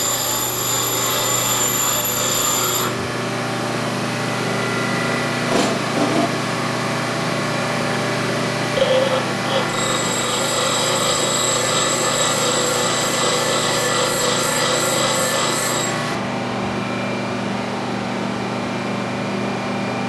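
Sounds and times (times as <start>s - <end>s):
bench grinder motor hum: 8.7s - 16.2s
grinding scrape against wheel: 8.8s - 16.0s.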